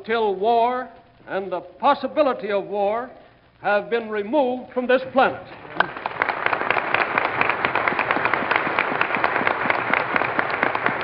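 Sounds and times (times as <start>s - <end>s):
audience applauding on old radio: 5.6s - 11.0s.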